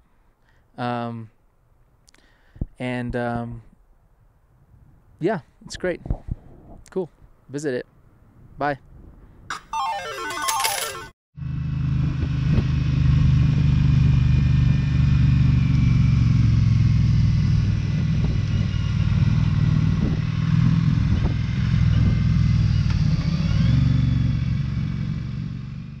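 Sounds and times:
road and wind noise: 0:01.4 - 0:09.6, 0:11.4 - 0:26.0
motorcycle engine droning: 0:11.4 - 0:26.0.

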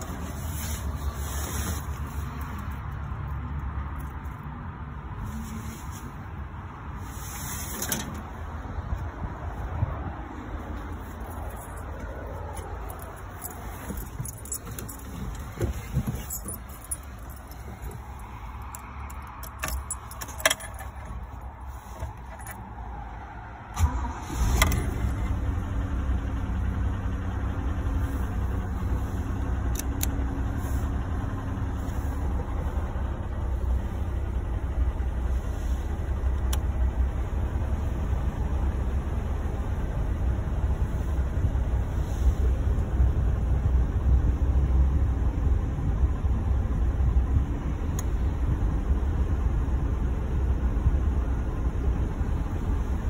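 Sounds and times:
keys jingling: 0:10.9 - 0:22.6
engine starting and idling: 0:23.7 - 0:32.5.

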